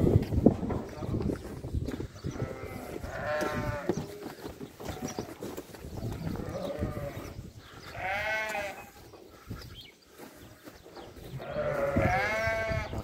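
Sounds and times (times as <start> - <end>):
sheep bleating: 2.3 - 4.1, 6.2 - 7.3, 7.9 - 9.0, 11.4 - 13.0.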